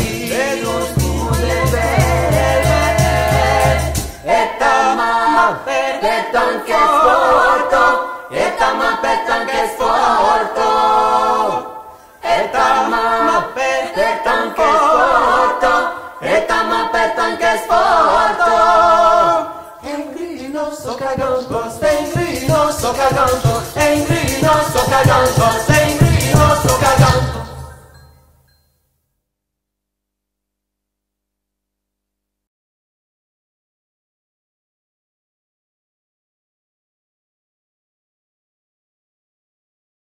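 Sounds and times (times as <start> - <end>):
group singing a cappella: 0.0 - 28.0
low rhythmic pulse with rattle: 21.8 - 28.6.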